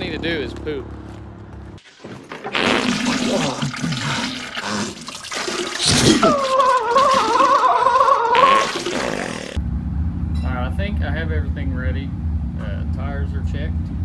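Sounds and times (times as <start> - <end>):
comedic diarrhea splattering: 2.3 - 9.6.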